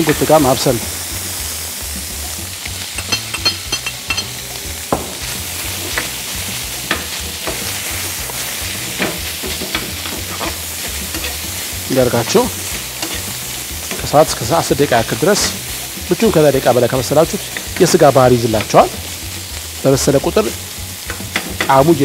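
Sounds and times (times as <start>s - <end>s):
food sizzling in oil in a frying pan: 0.0s - 22.0s
metal spoon scraping a pan: 5.8s - 11.8s, 12.6s - 14.1s.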